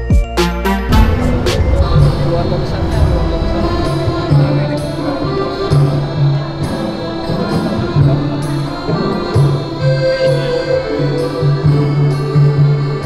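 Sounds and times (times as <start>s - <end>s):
instrumental music with beat: 0.0s - 1.8s.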